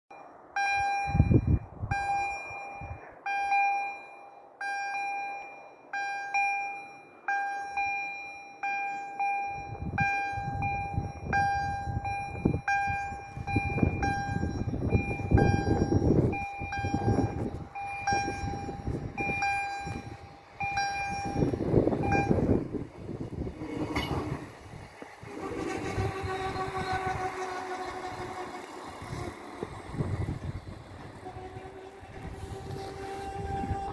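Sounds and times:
level crossing warning bell: 0.1s - 33.9s
train rumble: 0.1s - 33.9s.

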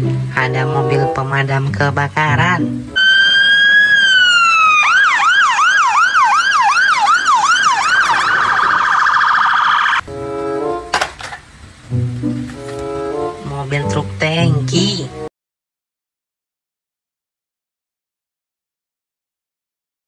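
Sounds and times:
fire engine siren: 3.0s - 10.6s.

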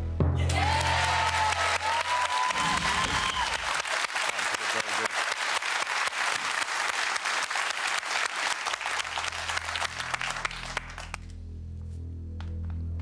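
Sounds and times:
audience applauding: 0.4s - 11.3s
low music drone: 8.8s - 13.0s.

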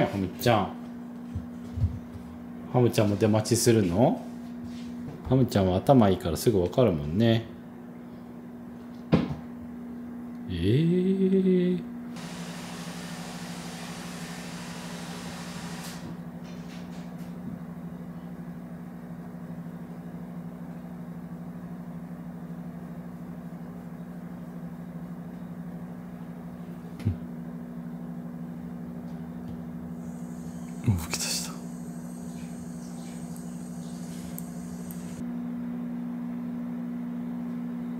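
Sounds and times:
low two-tone hum: 17.5s - 37.9s
soft hiss: 30.1s - 35.2s
click: 34.1s - 35.2s.

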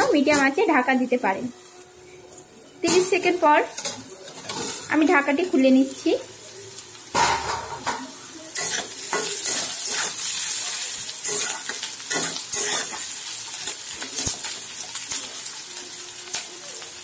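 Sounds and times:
vegetables sizzling in oil: 0.0s - 17.0s
spatula scraping a pan: 2.8s - 4.9s, 11.2s - 13.1s.

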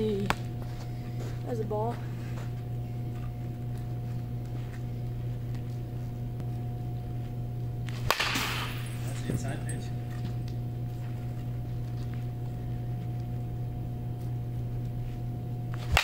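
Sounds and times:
steady low hum: 0.0s - 16.0s
bat cracking against baseball: 7.8s - 9.6s, 15.7s - 16.0s.

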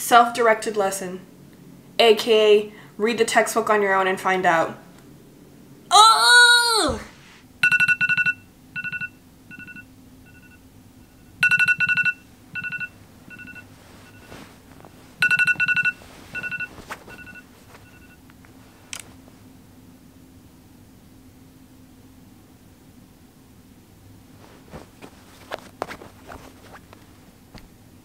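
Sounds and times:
smartphone alarm beeping: 7.6s - 10.6s, 11.4s - 14.3s, 15.2s - 18.2s.

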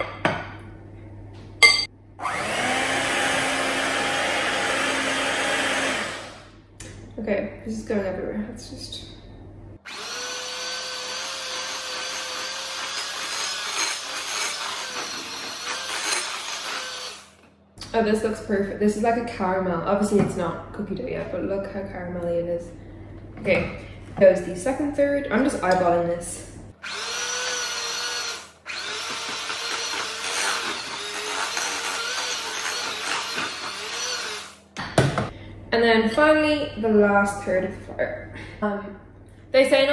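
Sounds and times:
electric hand mixer whine: 2.2s - 6.6s, 9.9s - 17.4s, 26.8s - 34.6s.

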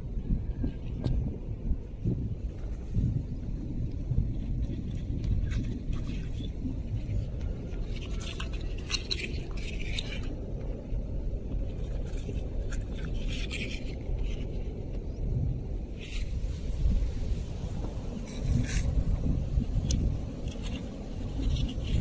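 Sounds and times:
wind rumble on microphone: 0.0s - 22.0s
gloved hand scraping shell on sand: 17.7s - 22.0s.

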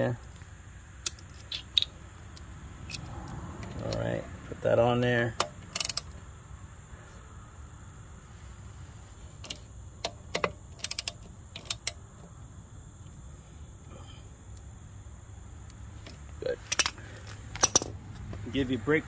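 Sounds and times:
low background hum: 0.0s - 19.0s
socket ratchet clicking: 5.4s - 6.2s, 9.4s - 12.0s
metallic clink: 17.6s - 18.0s.

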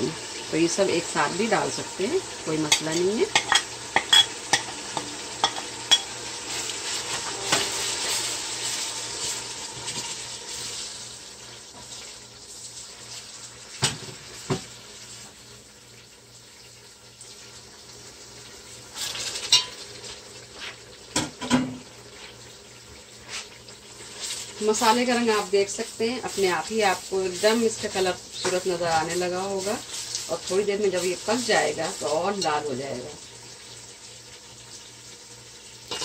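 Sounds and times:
masala sizzling in a pot: 0.0s - 36.0s
spoon clinking against pot: 2.7s - 6.1s, 19.5s - 19.8s.

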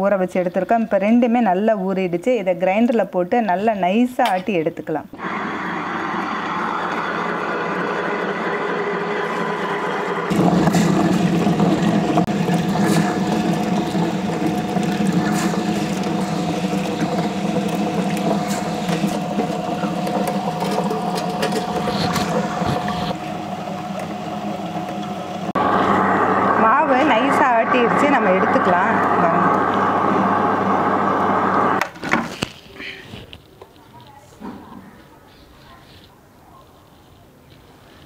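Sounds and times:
wet grinder motor hum: 5.2s - 31.8s.

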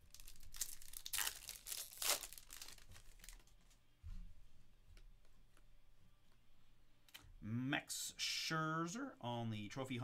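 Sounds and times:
foil wrapper tearing and crinkling: 0.0s - 3.4s.

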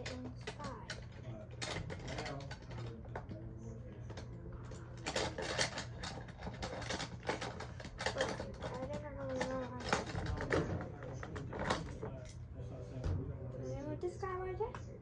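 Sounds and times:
plastic toy clicking and rattling: 0.0s - 3.4s, 4.1s - 12.4s.

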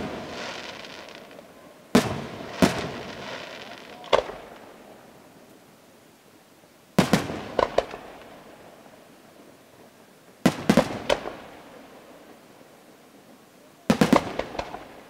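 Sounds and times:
firework shells bursting: 14.0s - 15.0s.

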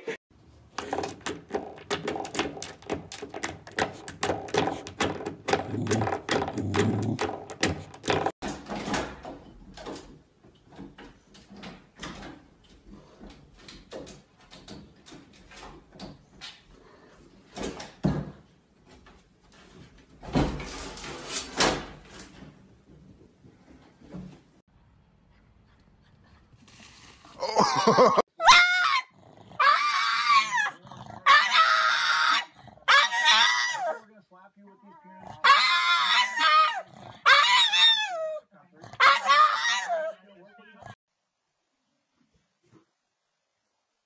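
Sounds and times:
spring doorstop twanging: 0.6s - 8.5s
door knocking: 0.7s - 8.4s.

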